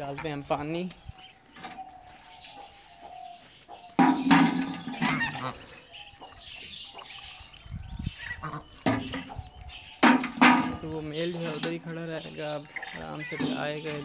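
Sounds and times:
goose honking: 0:04.8 - 0:05.7.

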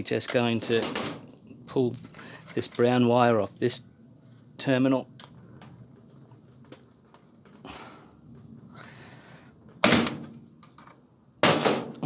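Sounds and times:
faint clicks and rustling: 0:00.2 - 0:09.8.

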